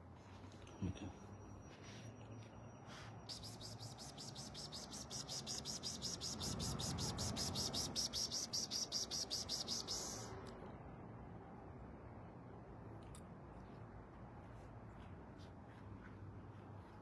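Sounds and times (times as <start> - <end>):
cricket chirping: 0.7 - 10.4.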